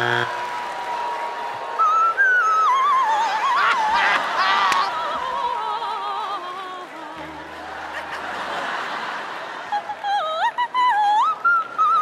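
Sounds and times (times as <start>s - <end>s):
audience laughter: 3.4s - 5.4s, 7.2s - 10.4s.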